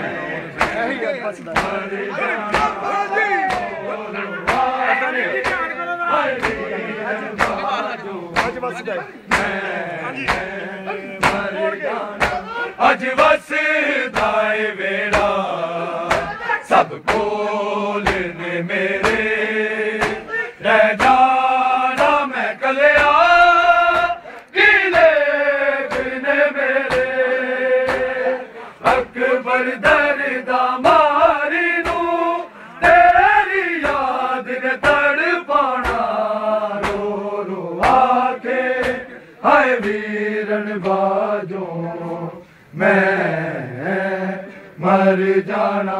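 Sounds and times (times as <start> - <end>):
men chanting in chorus: 0.0 - 45.9
hand slaps on bare chests: 0.6 - 0.8, 1.5 - 1.8, 2.5 - 2.8, 3.4 - 3.8, 4.5 - 4.8, 5.4 - 5.7, 6.4 - 6.6, 7.4 - 7.6, 8.4 - 8.6, 9.3 - 9.6, 10.2 - 10.5, 11.2 - 11.5, 12.2 - 12.5, 14.1 - 14.4, 15.1 - 15.4, 16.1 - 16.4, 17.0 - 17.3, 18.0 - 18.3, 19.0 - 19.2, 20.0 - 20.3, 20.9 - 21.2, 21.9 - 22.2, 23.0 - 23.2, 23.9 - 25.2, 25.9 - 26.2, 26.8 - 27.2, 27.8 - 28.1, 31.8 - 32.1, 33.8 - 34.1, 34.8 - 35.0, 35.8 - 36.2, 36.8 - 37.1, 37.8 - 38.1, 38.8 - 39.1, 39.8 - 40.0.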